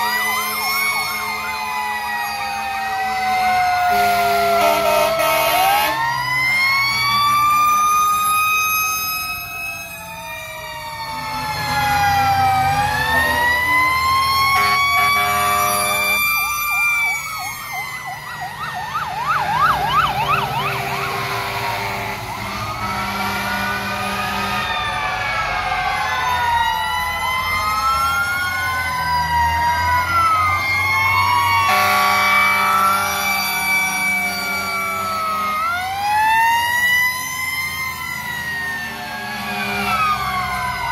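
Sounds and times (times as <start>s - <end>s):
fire truck sirens wailing: 0.0s - 40.9s
horn blasts: 3.9s - 6.0s, 14.6s - 16.2s, 20.5s - 24.7s, 31.7s - 33.2s, 39.3s - 40.2s.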